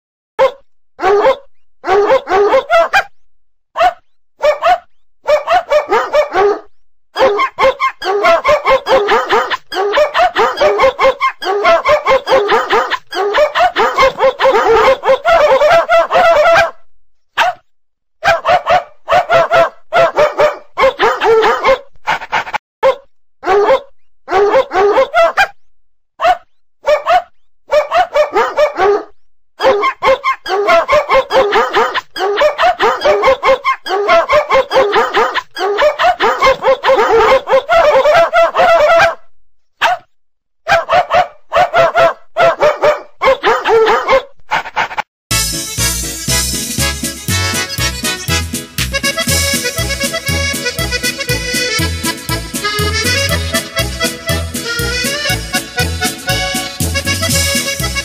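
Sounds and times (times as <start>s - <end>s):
dog barking: 0.4s - 3.1s, 3.8s - 25.6s, 26.2s - 45.0s.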